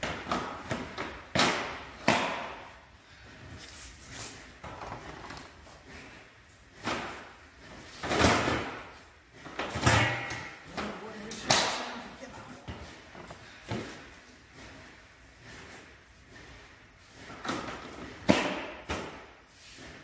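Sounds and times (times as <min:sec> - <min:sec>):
plastic floor slats clacking on beams: 0:00.0 - 0:02.7, 0:09.5 - 0:12.0, 0:17.4 - 0:19.3
shuffling and scraping: 0:03.0 - 0:08.0.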